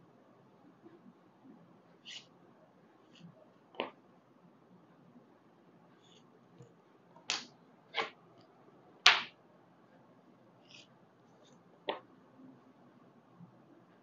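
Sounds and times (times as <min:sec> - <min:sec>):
faint scratches: 0:02.0 - 0:02.4.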